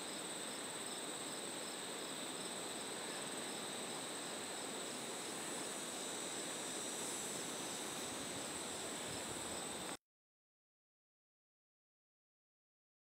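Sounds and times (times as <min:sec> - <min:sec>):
insects trilling: 0:00.0 - 0:10.0.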